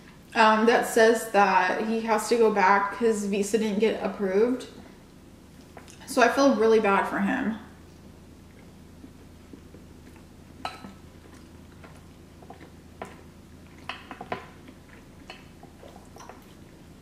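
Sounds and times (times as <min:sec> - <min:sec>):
person eating: 0:08.4 - 0:17.0.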